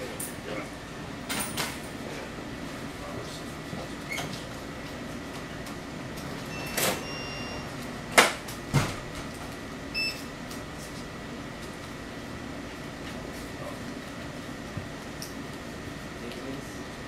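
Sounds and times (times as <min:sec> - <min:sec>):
steady hum: 0:00.0 - 0:17.0
short electronic beeps: 0:06.5 - 0:07.7, 0:10.0 - 0:10.2.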